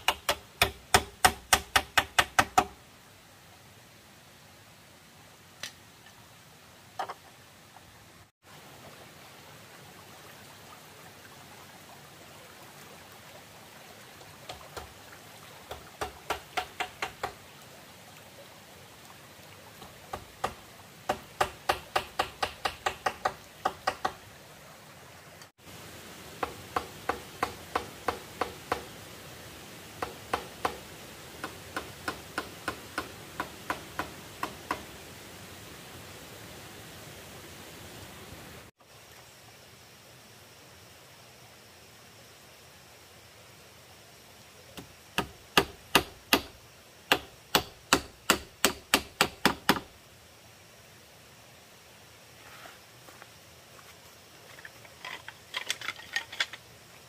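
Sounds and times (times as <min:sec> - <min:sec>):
hammer knocking on bamboo: 0:00.0 - 0:02.8, 0:15.7 - 0:17.4, 0:19.8 - 0:24.2, 0:26.4 - 0:28.9, 0:30.0 - 0:34.9, 0:44.8 - 0:49.9
steady background hiss: 0:00.0 - 0:57.0.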